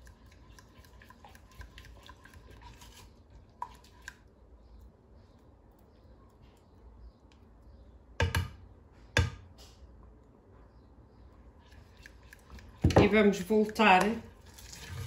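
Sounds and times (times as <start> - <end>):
spatula scraping glass bowl: 0.1 - 3.2.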